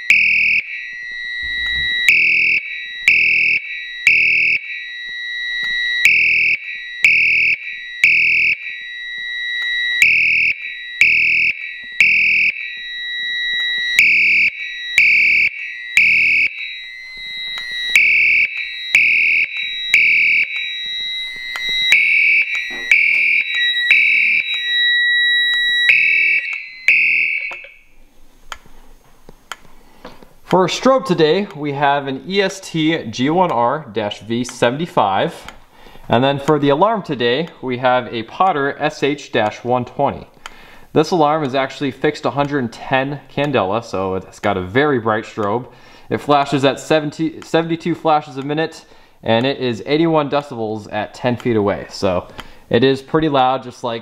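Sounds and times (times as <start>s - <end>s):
fire alarm horn blasts: 0.0s - 28.0s.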